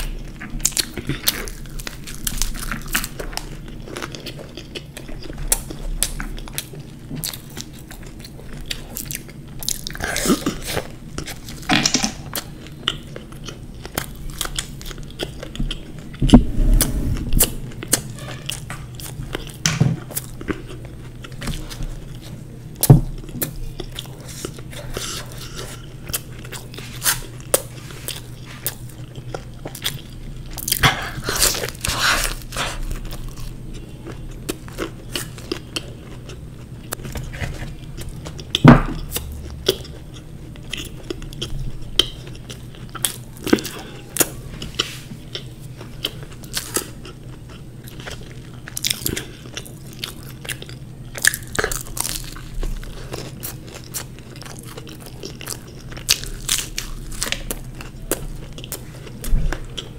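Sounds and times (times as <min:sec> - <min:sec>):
crunching bites and chewing: 0:00.0 - 0:17.2, 0:18.9 - 0:59.9
sharp thump: 0:16.2 - 0:17.7.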